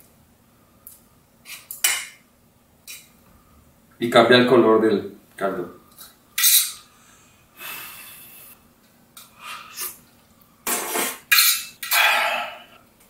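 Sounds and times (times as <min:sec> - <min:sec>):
person slurping noodles: 0:11.9 - 0:12.8.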